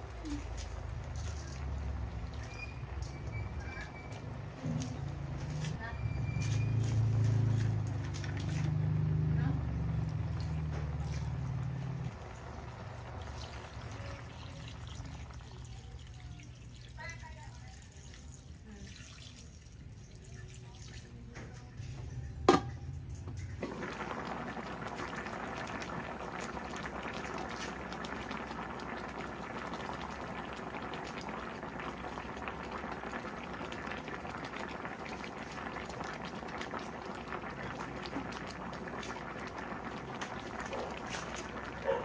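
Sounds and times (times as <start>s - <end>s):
pan boiling and bubbling: 0.0s - 42.0s.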